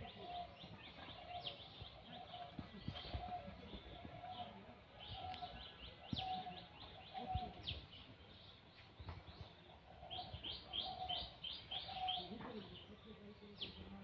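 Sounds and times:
birds chirping: 0.0s - 14.0s.

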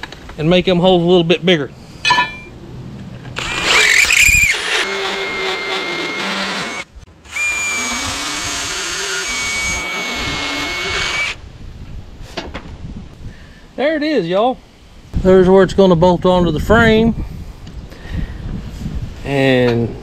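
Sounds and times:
cordless drill whining: 3.4s - 11.4s.

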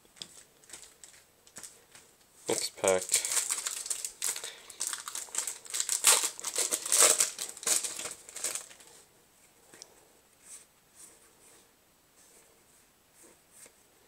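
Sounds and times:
foil wrapper crinkling: 0.2s - 8.8s.

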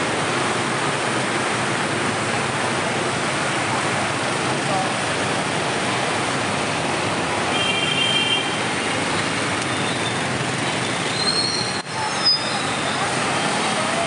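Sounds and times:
traffic on a wet road: 0.0s - 14.0s
high squeal: 9.7s - 13.2s.

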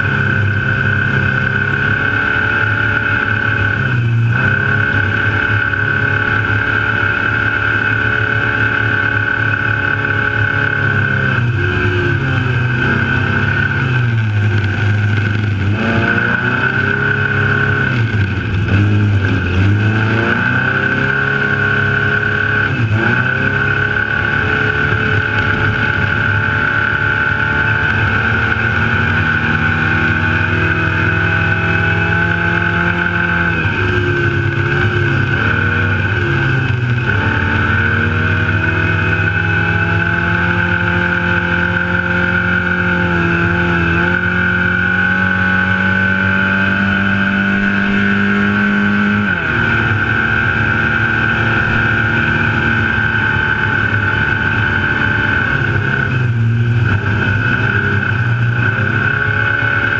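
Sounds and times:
steady high whine: 0.0s - 59.9s
truck engine running hard: 0.0s - 59.9s.

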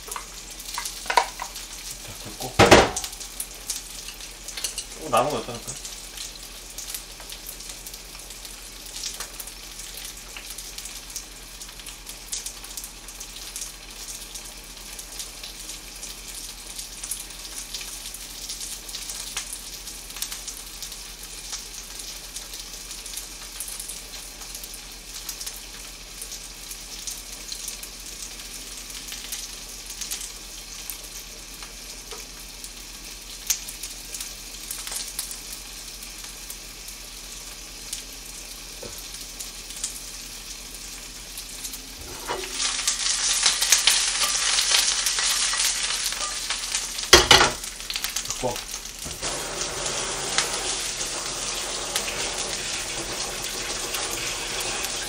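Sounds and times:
oil sizzling in a frying pan: 0.0s - 55.0s.

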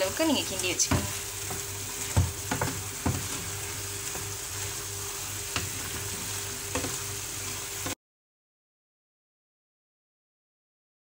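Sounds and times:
food sizzling in a frying pan: 0.0s - 8.0s
utensil knocking against pan: 0.8s - 3.5s.

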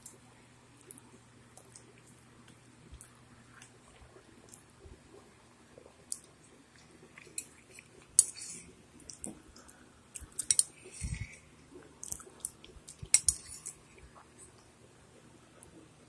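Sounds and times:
chewing: 0.8s - 5.2s, 5.8s - 14.7s.

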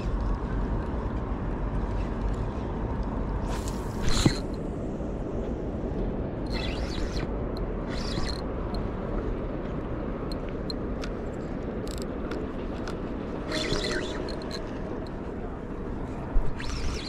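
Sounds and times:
wind rumble on microphone: 0.0s - 17.0s
fishing reel handling rustles: 12.8s - 14.7s.

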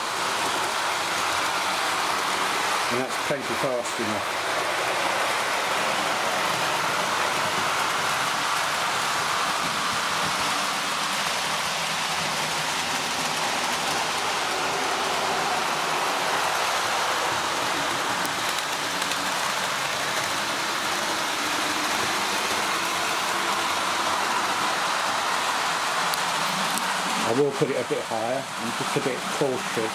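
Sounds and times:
model train wheels rattling on track: 0.2s - 23.8s.

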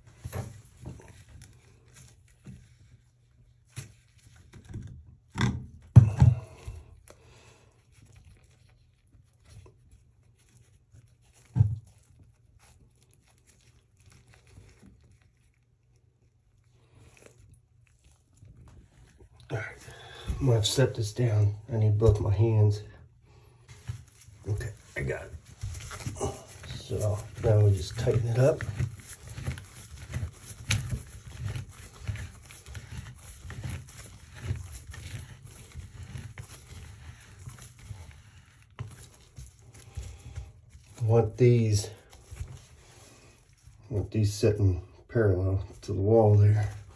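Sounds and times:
gloved hand rustling and scraping: 0.0s - 46.9s
plastic knocking and scraping on pipe: 4.4s - 6.7s, 23.7s - 36.4s.

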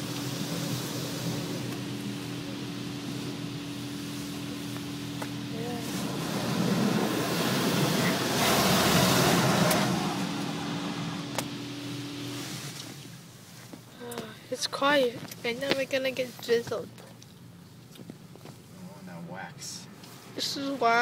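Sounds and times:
water jets spraying on car: 0.0s - 13.4s
steady equipment hum: 0.0s - 21.0s.

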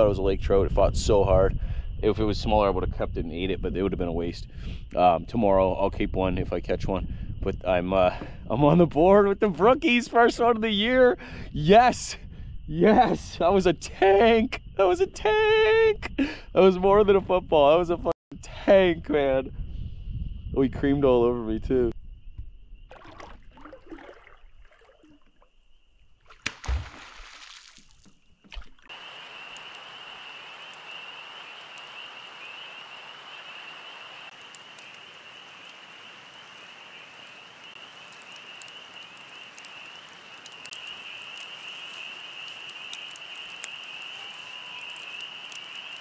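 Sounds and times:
campfire crackling and popping: 26.2s - 46.0s.

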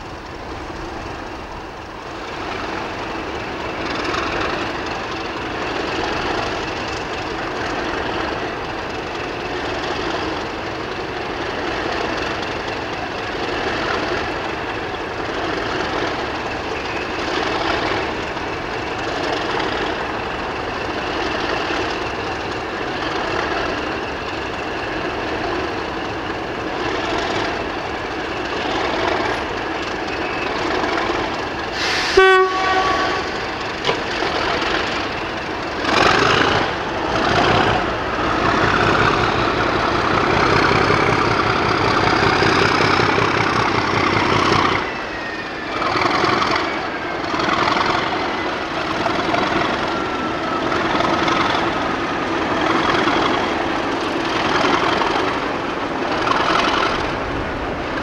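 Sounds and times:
diesel locomotive engine: 0.0s - 58.0s
train horn blast: 31.8s - 33.6s.

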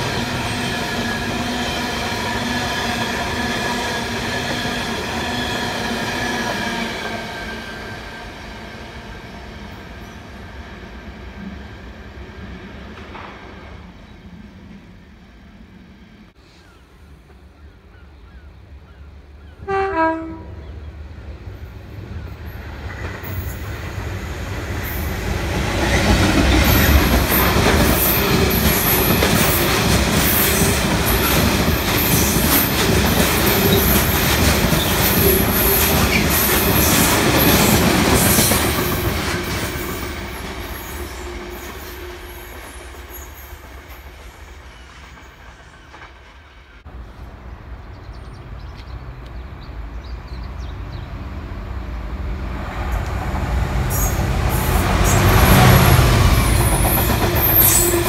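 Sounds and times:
freight train passing on track: 0.0s - 58.0s
train horn blast: 19.6s - 20.7s.

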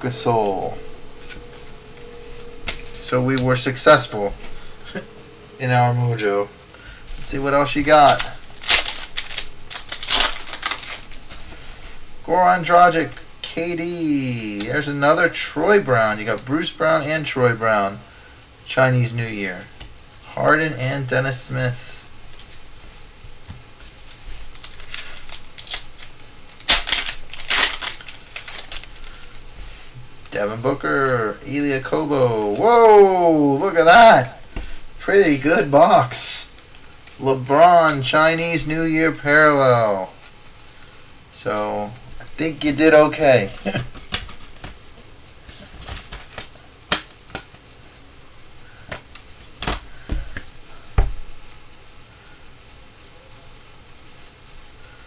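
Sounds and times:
card pack wrapper crinkling: 7.3s - 11.8s, 24.4s - 29.4s.

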